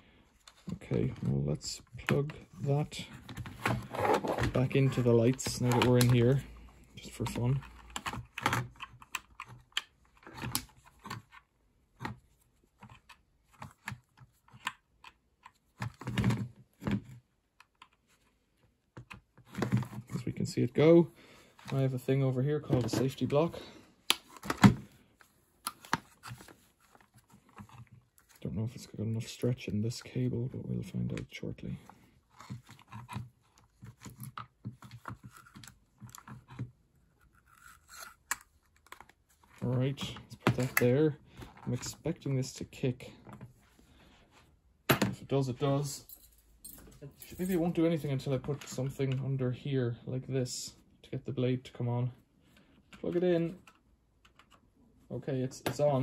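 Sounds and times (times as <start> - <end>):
screwdriver clicking and scraping: 37.2 - 38.4.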